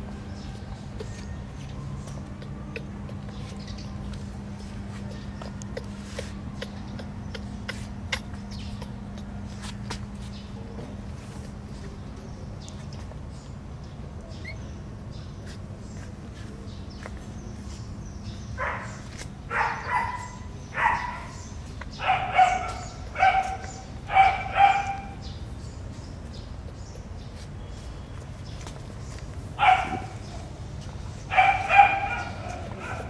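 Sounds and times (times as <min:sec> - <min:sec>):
baby macaque calls: 0:05.0 - 0:09.6, 0:14.3 - 0:14.8.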